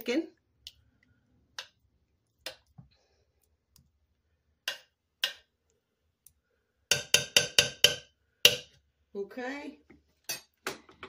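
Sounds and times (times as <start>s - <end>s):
spoon knocking and scraping crock: 6.9s - 8.8s.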